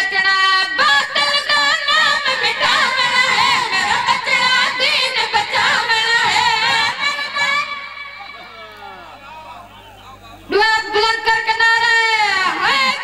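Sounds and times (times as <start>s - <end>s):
boys singing together: 0.7s - 9.0s.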